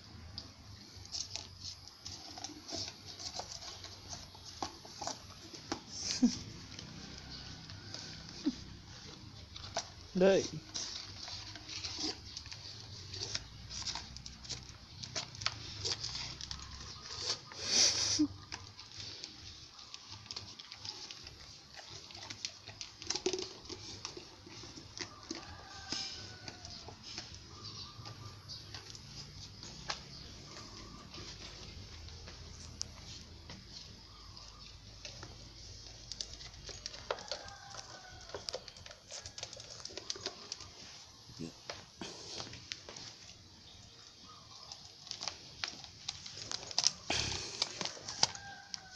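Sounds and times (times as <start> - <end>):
dog chewing plastic cup: 0.9 - 6.0, 6.6 - 17.6, 18.4 - 41.7
rooster crowing: 25.0 - 27.1, 37.0 - 38.6, 47.3 - 48.9.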